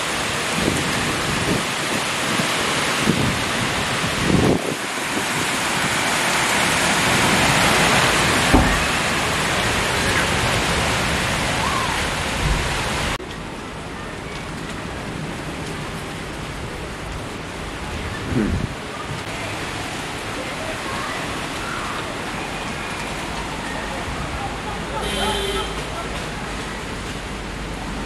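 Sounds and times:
wind gusts thumping microphone: 0.0 - 13.5, 14.4 - 19.3
wind and rain thrashing trees: 0.0 - 28.0.

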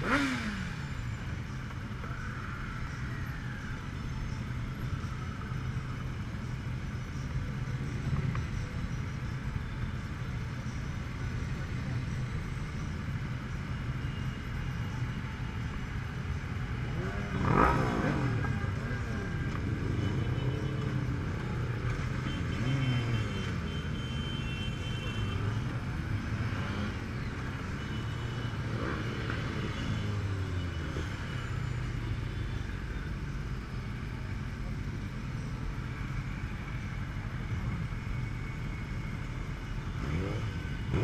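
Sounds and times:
motorcycle revving loudly: 0.0 - 1.0, 16.9 - 18.7, 26.2 - 27.1, 28.1 - 31.1, 40.0 - 41.0
motorcycle engines: 0.0 - 41.0.

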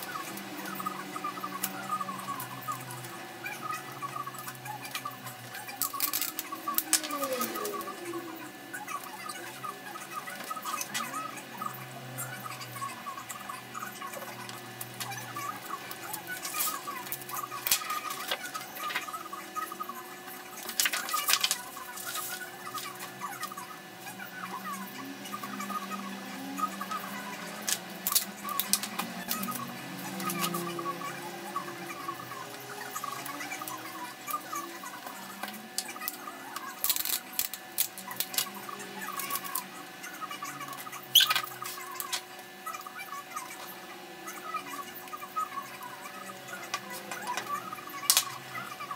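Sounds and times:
cardstock rustling and crackling: 20.6 - 22.5.

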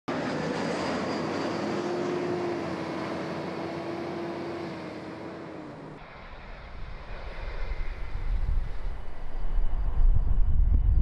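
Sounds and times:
jet airliner flying overhead: 0.1 - 11.0.

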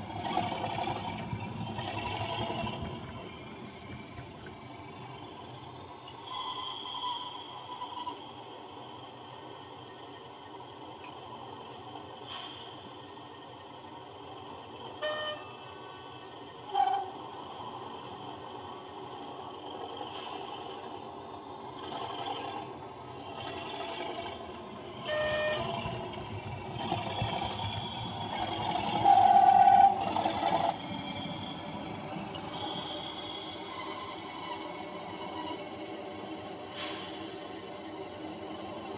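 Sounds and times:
model diesel engine sound: 0.0 - 38.9
train horn toots: 15.0 - 15.6, 25.0 - 25.9
long horn blast: 25.0 - 25.8.

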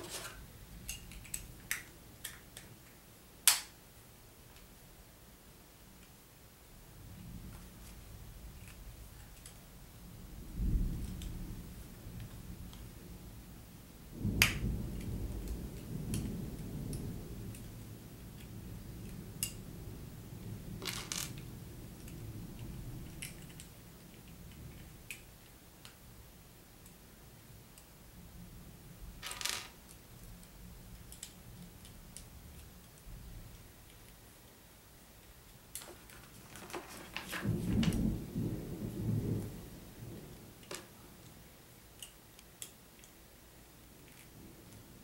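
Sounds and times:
plastic pieces clicking and clattering: 20.8 - 21.4, 29.2 - 29.8.

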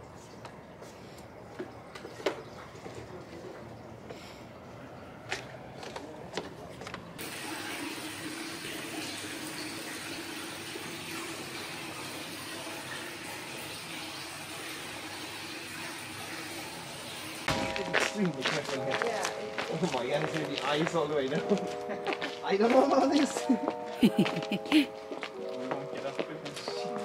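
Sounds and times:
water pouring into a tub: 7.2 - 17.5.

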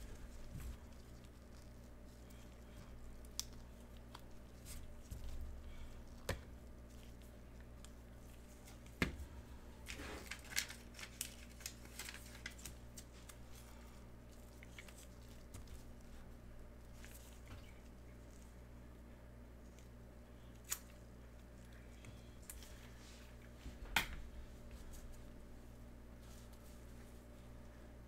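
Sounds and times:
pack wrapper tearing: 9.9 - 13.4.

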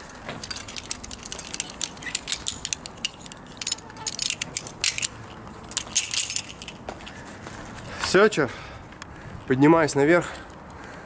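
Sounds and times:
carabiners clinking: 0.0 - 7.2.

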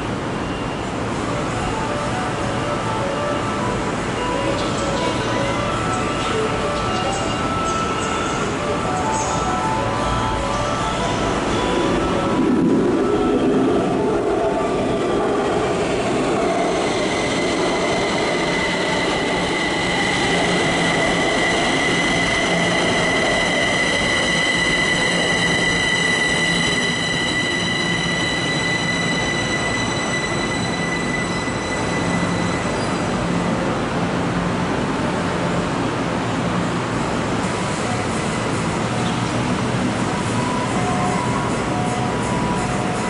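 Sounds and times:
high squeal of wheels and brakes: 15.8 - 33.6, 37.8 - 43.0
electric train motor whine: 16.1 - 32.8.

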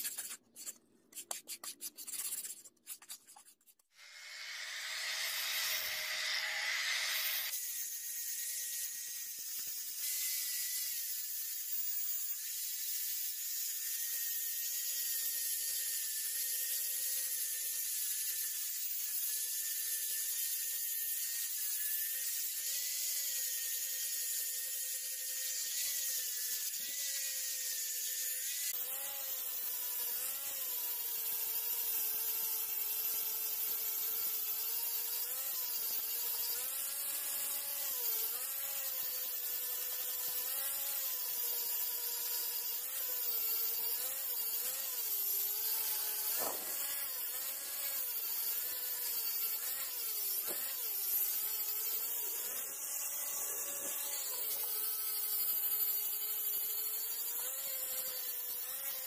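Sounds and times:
abrasive disc hissing on metal: 4.0 - 7.5
angle grinder whine: 4.0 - 7.8, 42.1 - 59.0.

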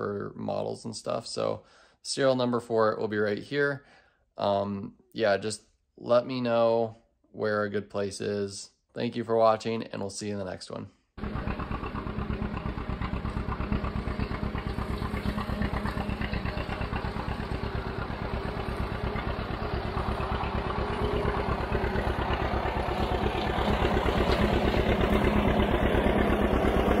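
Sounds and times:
tractor engine exhaust popping: 11.2 - 27.0.

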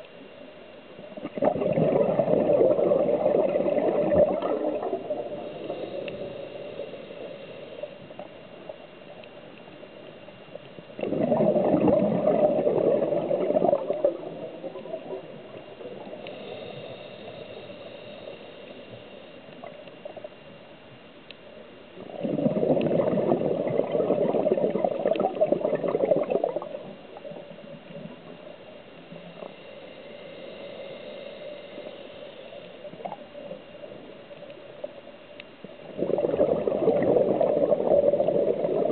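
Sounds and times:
soft hiss: 0.0 - 38.9
air bubbling underwater: 1.2 - 5.4, 11.0 - 15.2, 22.1 - 26.9, 35.9 - 38.9.

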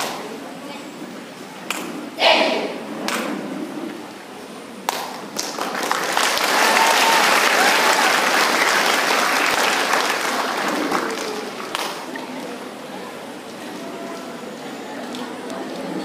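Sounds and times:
burst of many voices: 0.0 - 3.2, 6.6 - 16.0
audience applause: 5.4 - 12.4.

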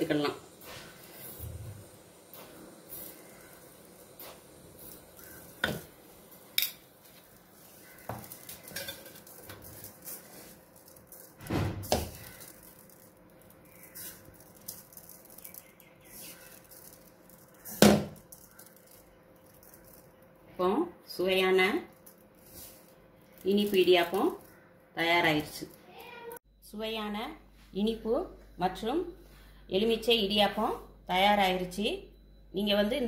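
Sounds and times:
hands rustling food in pan: 6.3 - 20.2.

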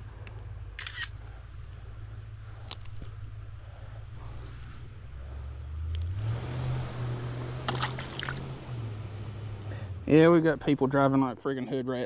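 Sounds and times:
car accelerating past: 4.3 - 10.4.

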